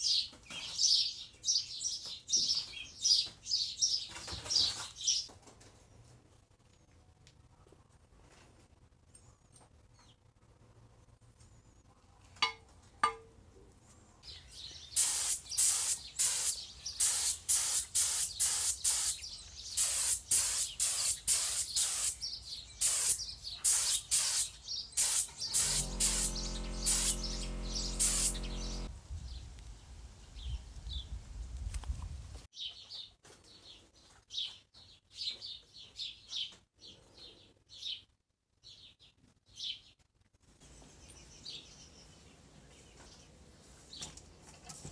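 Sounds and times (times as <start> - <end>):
birds chirping: 14.2 - 28.9
paint spray gun hissing: 15.0 - 19.2, 19.8 - 22.2, 22.8 - 28.9
steady low hum: 25.3 - 28.9.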